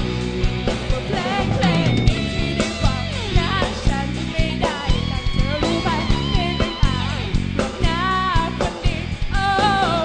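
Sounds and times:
bass guitar: 0.0 - 10.0
drum kit beating: 0.0 - 10.0
electric guitars: 0.0 - 10.0
woman singing lead: 0.7 - 10.0.

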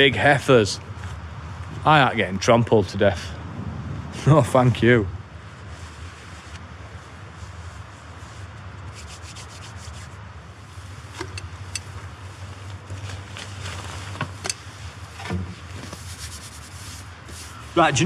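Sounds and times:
rustling camping gear: 5.4 - 18.0.

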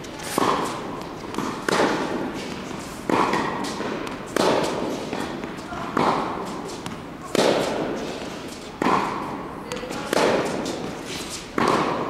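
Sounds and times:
tennis ball hit by racket: 0.0 - 12.0.

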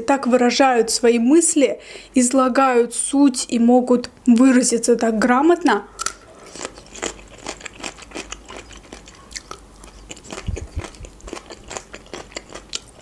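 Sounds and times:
crunchy chewing: 5.9 - 13.0.

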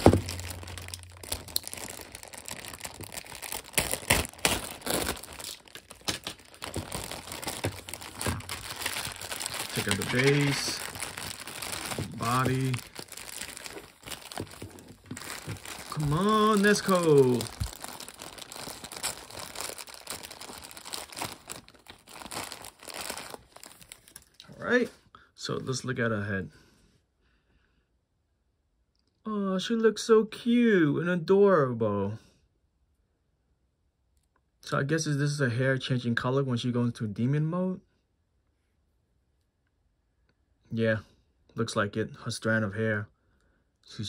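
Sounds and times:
plastic bags crinkling: 0.0 - 24.4.

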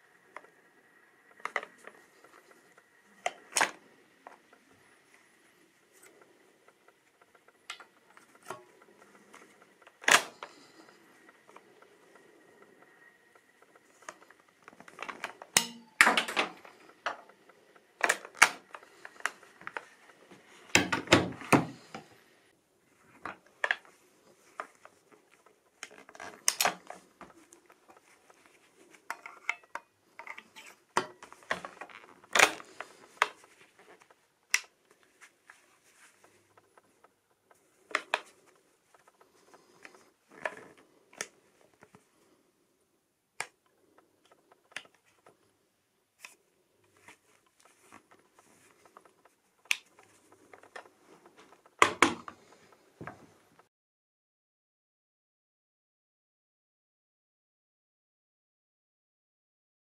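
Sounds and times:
shotgun breech opening and closing: 8.0 - 11.4, 29.1 - 34.7.

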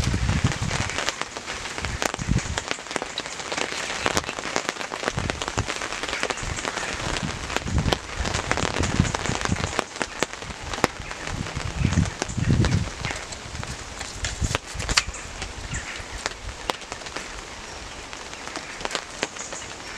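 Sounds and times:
heavy rain on a tarp: 0.0 - 19.9.

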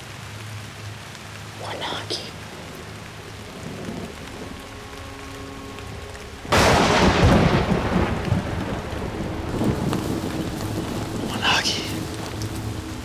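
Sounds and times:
steady rain: 0.0 - 13.0
loud thunderclap rumbling: 3.4 - 12.4.

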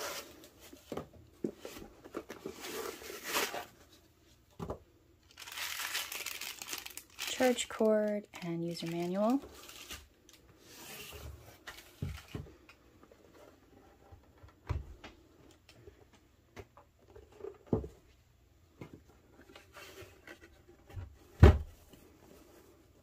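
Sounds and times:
packing paper rustling: 5.2 - 12.4
cardboard box knocks and thumps: 21.0 - 21.8.

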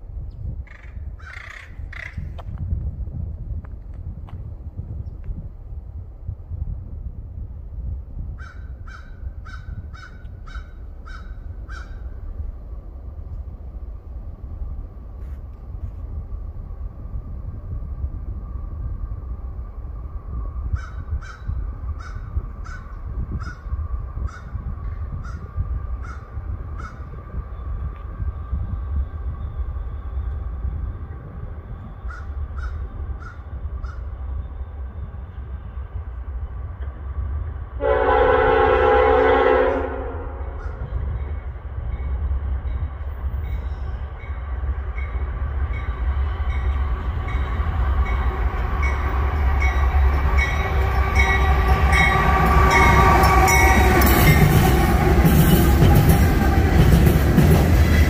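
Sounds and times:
crows cawing: 0.7 - 2.3, 8.4 - 12.0.

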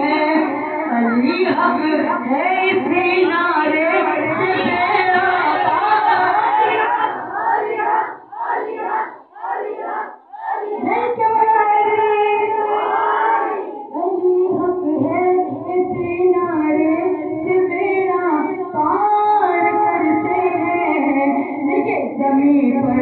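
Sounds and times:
high voices singing: 3.0 - 14.6.

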